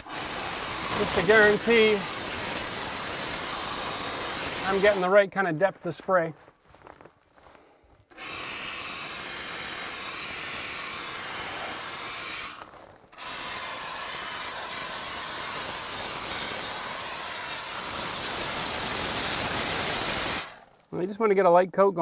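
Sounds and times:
spray foam gun hissing: 0.0s - 5.2s, 8.1s - 12.6s, 13.2s - 20.6s.

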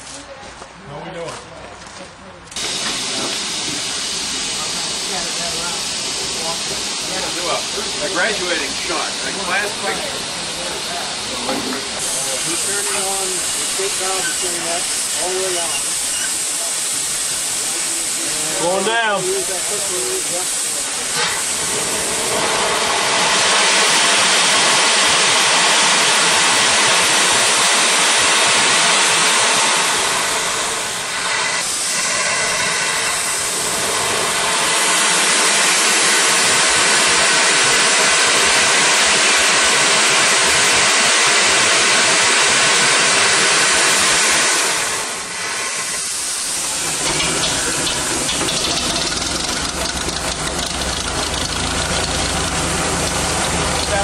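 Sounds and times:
loud steam hiss from valve: 2.6s - 54.0s
low steady engine sound: 46.6s - 54.0s.

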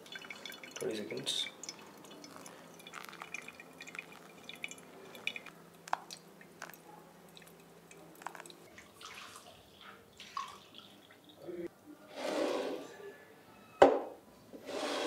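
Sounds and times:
water dripping and trickling: 0.0s - 11.7s.

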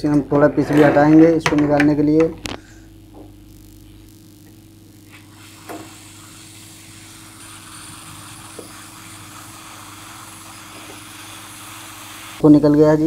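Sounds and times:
hot-air gun hissing: 5.0s - 12.5s.

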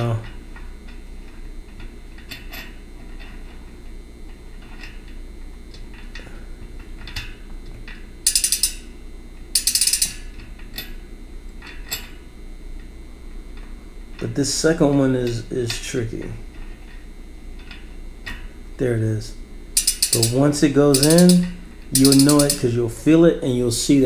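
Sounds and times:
bicycle hub ratcheting: 8.2s - 8.9s, 9.6s - 11.0s, 19.8s - 22.7s.

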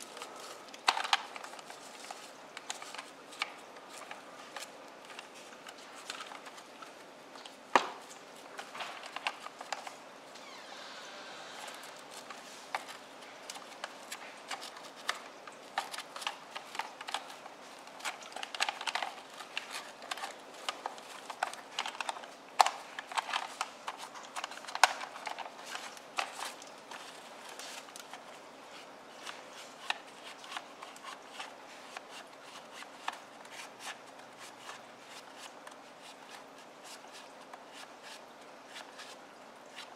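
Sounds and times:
plastic toy cars clicking and knocking: 18.0s - 27.8s.

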